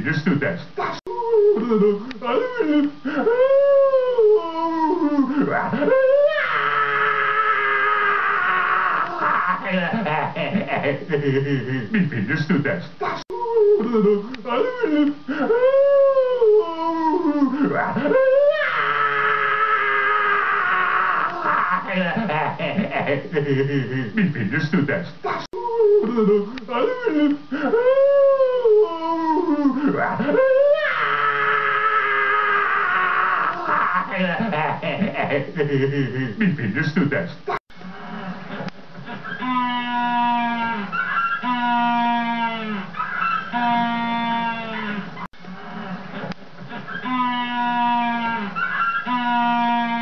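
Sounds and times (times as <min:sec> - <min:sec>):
long held scream: 0:05.8 - 0:09.6, 0:18.1 - 0:21.9, 0:30.3 - 0:34.1, 0:39.4 - 0:45.0, 0:47.0 - 0:50.0
penguin braying call: 0:47.1 - 0:49.9.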